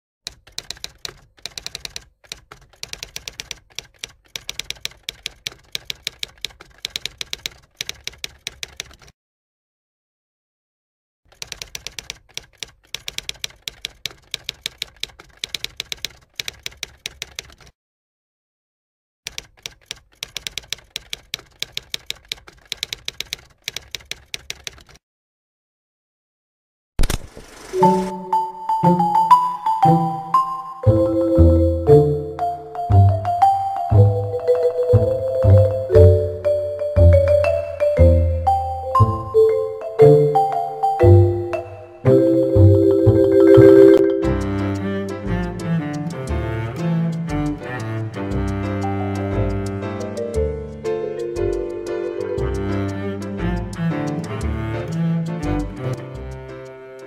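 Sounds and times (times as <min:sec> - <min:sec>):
typewriter keys clacking: 0:00.3 - 0:09.2, 0:11.3 - 0:17.8, 0:19.3 - 0:25.0, 0:44.4 - 0:57.0.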